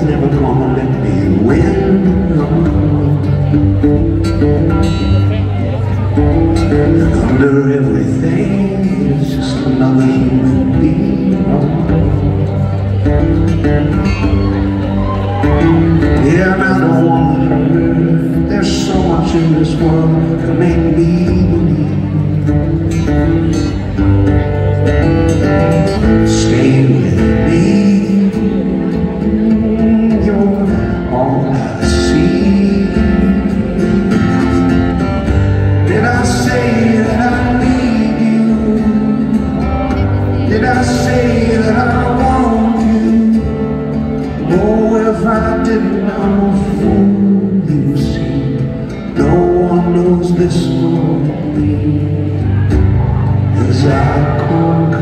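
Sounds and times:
man singing: 0.0s - 55.0s
strummed acoustic guitar: 0.0s - 55.0s.

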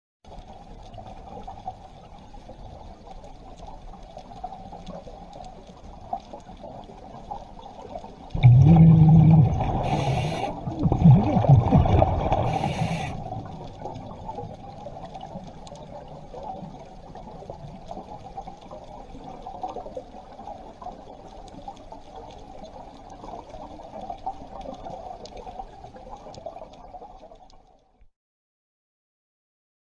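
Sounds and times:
low underwater background noise: 0.3s - 28.0s
gush of exhaled bubbles: 8.3s - 16.8s
short hisses: 9.7s - 10.7s, 12.3s - 13.2s.

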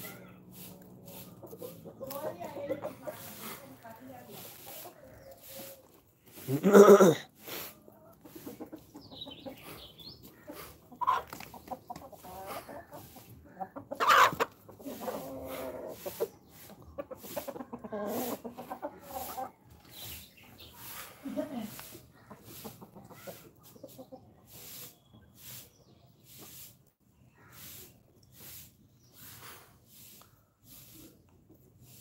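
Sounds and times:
chickens clucking: 0.0s - 32.0s
loud chicken calls: 12.2s - 16.3s.

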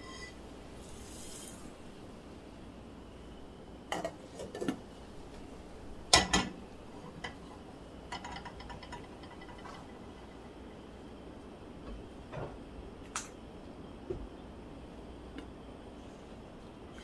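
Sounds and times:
pan scraping: 0.0s - 1.6s.

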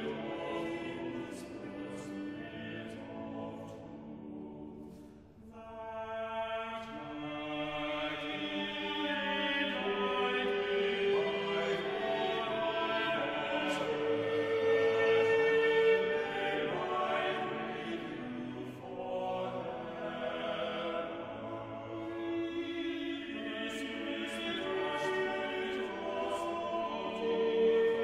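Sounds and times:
choir singing held notes: 0.0s - 5.0s, 5.6s - 28.0s.

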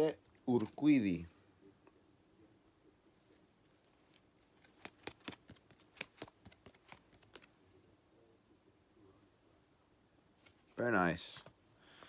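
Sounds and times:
cards flipped through by hand: 3.7s - 7.6s.

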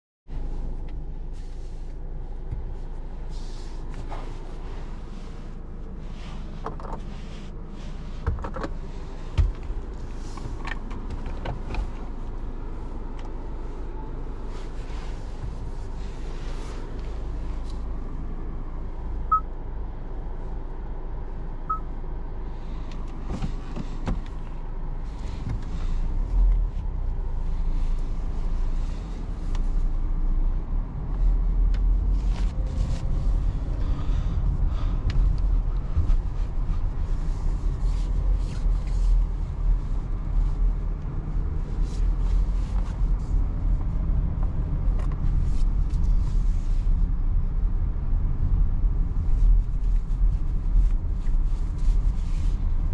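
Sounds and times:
tyre and road rumble: 0.3s - 52.9s
short electronic beeps: 19.3s - 19.5s, 21.7s - 21.9s.

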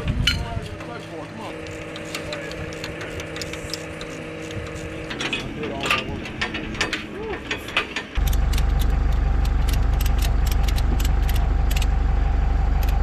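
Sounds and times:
tractor engine idling: 0.0s - 13.0s
hand tools clicking: 0.2s - 11.9s
ratchet strap clicking: 1.6s - 5.5s, 8.2s - 11.9s.

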